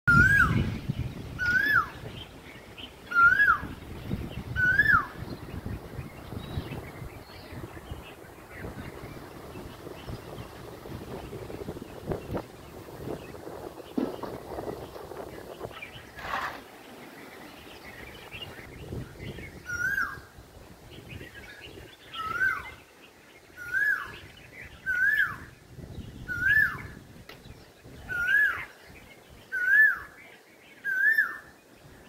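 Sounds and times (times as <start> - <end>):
bird whistled call: 0.1 - 0.7, 1.4 - 2.0, 3.1 - 3.8, 4.6 - 5.2, 19.6 - 20.3, 22.2 - 22.8, 23.6 - 25.5, 26.3 - 27.0, 29.5 - 30.2, 30.8 - 31.5
wind rumble on microphone: 0.1 - 30.1.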